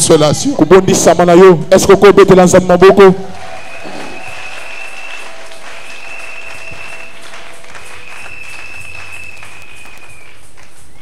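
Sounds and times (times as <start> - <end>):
crowd applauding: 2.7 - 11.0
high whistle-like tone: 3.6 - 11.0.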